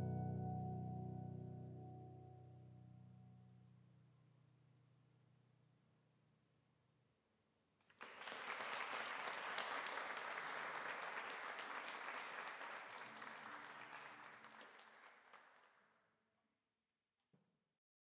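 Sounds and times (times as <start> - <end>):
small audience applauding: 7.8 - 16.1.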